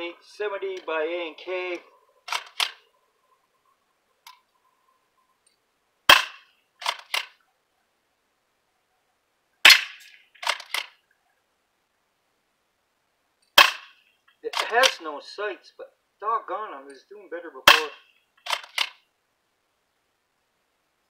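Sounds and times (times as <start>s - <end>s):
airsoft shotgun shot snap: 6.1s - 6.4s, 9.6s - 10.1s.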